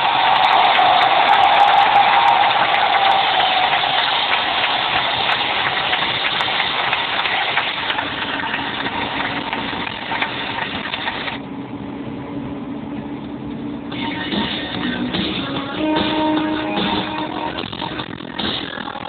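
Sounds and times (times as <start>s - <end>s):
diesel engine running: 4.5s - 18.6s.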